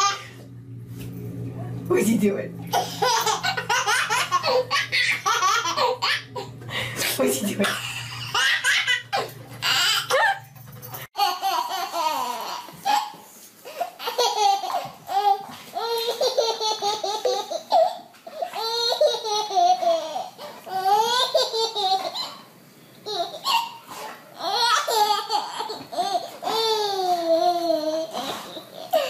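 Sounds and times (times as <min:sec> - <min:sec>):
baby laughing: 0:02.7 - 0:06.6, 0:07.6 - 0:10.5, 0:11.2 - 0:29.0.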